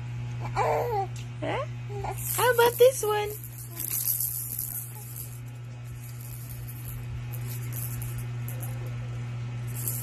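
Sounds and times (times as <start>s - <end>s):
steady low hum: 0.0s - 10.0s
plastic baby rattle shaking: 2.2s - 8.8s, 9.7s - 10.0s.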